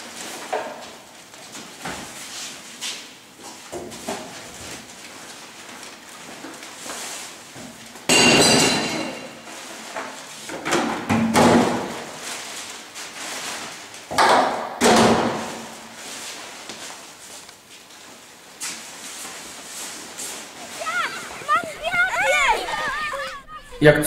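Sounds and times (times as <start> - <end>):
waste clattering into bins: 3.7 - 22.0.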